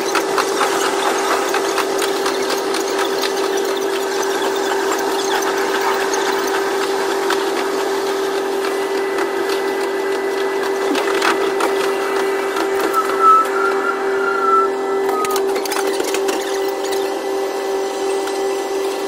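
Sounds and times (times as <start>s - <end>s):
wheels clicking and rattling: 0.0s - 13.3s, 15.2s - 17.1s
diesel railcar hum: 11.9s - 15.3s
thin squeal: 12.9s - 17.1s.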